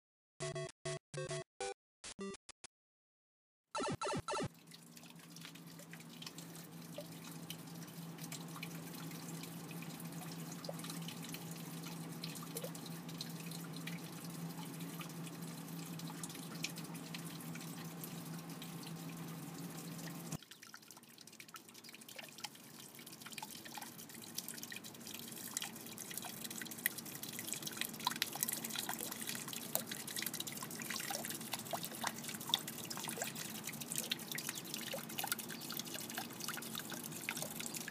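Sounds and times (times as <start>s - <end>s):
low steady hum: 4.4s - 20.4s
water dripping into a tub: 4.5s - 37.9s
water trickling: 4.5s - 37.9s.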